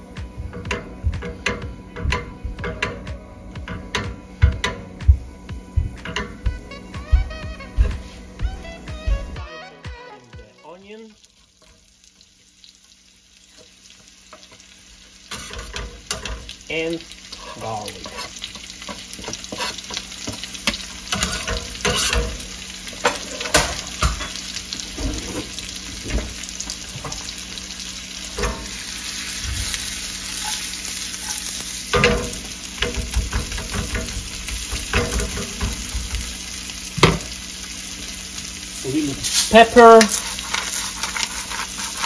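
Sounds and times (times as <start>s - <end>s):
onion frying sizzle: 0.0s - 42.0s
pan knocking and scraping: 0.5s - 4.9s, 31.9s - 36.1s.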